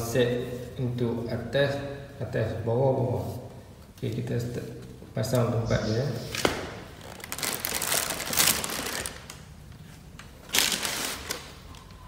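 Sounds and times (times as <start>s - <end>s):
plastic and styrofoam crinkling: 6.4s - 9.5s, 10.4s - 12.0s.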